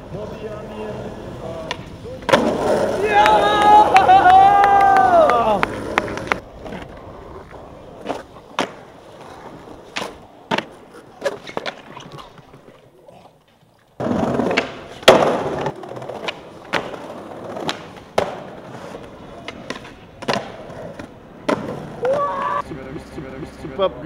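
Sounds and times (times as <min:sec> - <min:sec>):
wheels rumbling over cobblestones: 0:00.0 - 0:12.7
skateboard wheels rolling: 0:00.0 - 0:22.6
skateboard clacking on concrete: 0:01.0 - 0:22.2.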